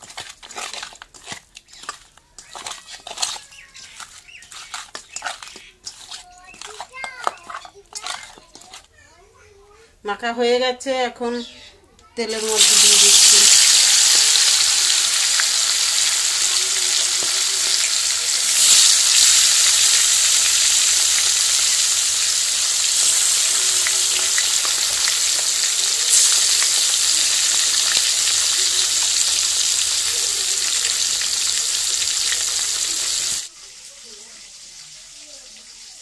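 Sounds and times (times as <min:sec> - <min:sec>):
fish sizzling in hot oil: 0:12.2 - 0:36.0.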